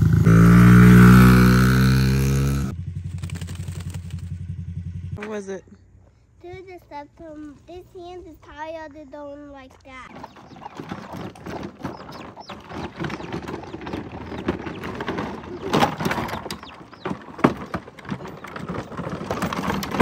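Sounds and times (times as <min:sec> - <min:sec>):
plastic toy wheels clattering on gravel: 0:03.0 - 0:04.4, 0:10.1 - 0:20.0.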